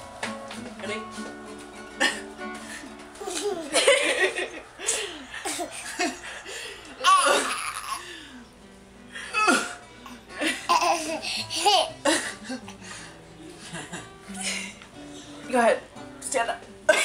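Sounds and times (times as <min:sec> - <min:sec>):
background music: 0:00.0 - 0:17.0
baby laughing: 0:03.2 - 0:06.4, 0:07.0 - 0:08.2, 0:10.4 - 0:12.3
woman laughing: 0:03.3 - 0:08.0, 0:10.4 - 0:12.8.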